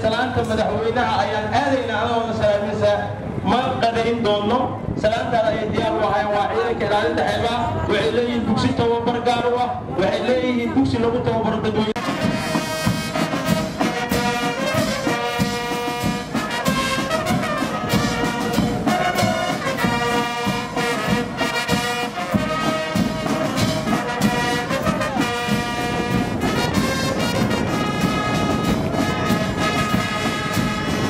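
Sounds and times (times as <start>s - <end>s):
brass band playing: 12.0s - 31.0s.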